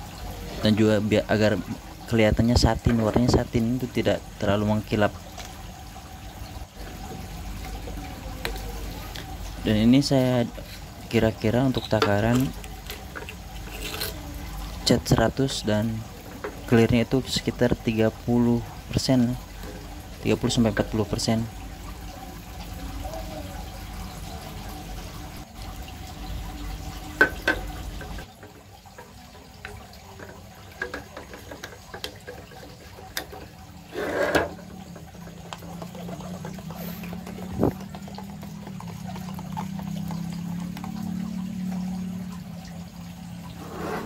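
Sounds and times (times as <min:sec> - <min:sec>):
steel ruler scraping in cup: 0:13.2 - 0:14.2, 0:33.9 - 0:34.6, 0:43.6 - 0:44.0
liquid pouring into plastic cup: 0:26.5 - 0:43.6.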